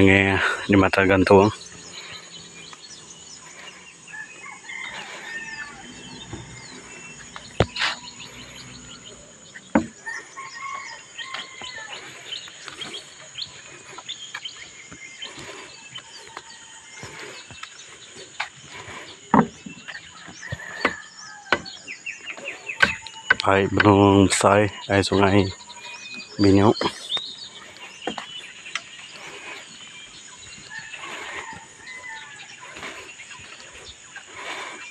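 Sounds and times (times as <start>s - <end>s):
birds chirping: 0.0s - 34.9s.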